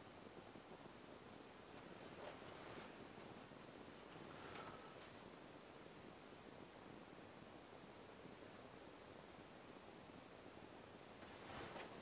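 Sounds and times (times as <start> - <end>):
soft brief rustle: 11.2 - 12.0.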